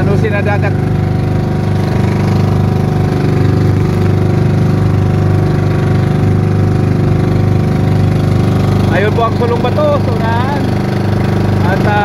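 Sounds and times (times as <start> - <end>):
boat motor droning: 0.0 - 12.0.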